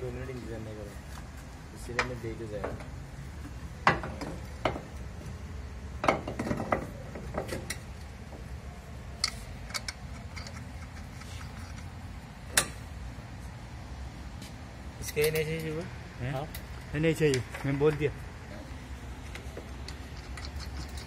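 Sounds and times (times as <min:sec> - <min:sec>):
metal clinks and knocks: 0:19.8 - 0:21.0.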